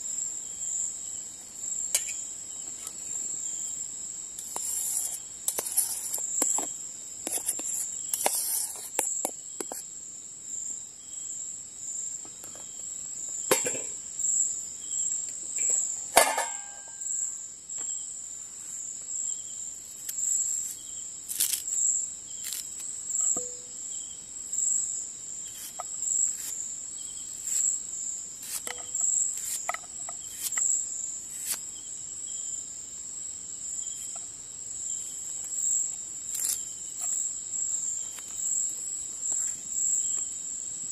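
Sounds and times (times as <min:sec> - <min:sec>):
crickets chirping: 0:00.0 - 0:40.9
cookware clicks and knocks: 0:16.2 - 0:16.8
ringing metal clink: 0:23.2 - 0:23.7.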